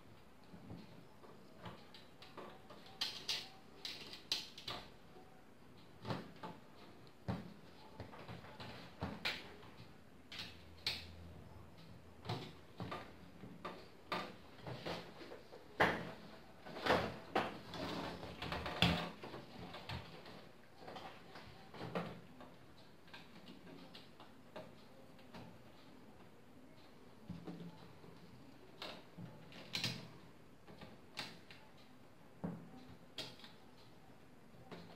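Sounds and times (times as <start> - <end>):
scraping and rustling: 12.3 - 22.4.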